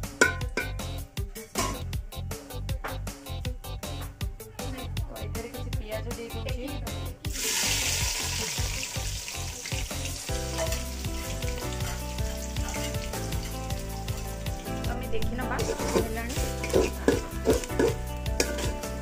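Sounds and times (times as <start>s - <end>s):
background music: 0.0s - 19.0s
onions sizzling in oil: 7.3s - 19.0s.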